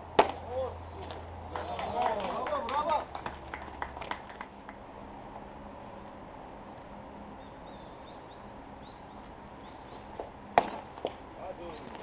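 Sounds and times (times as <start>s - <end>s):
open-air ambience: 0.0s - 12.0s
faint bird chirps: 7.4s - 10.1s.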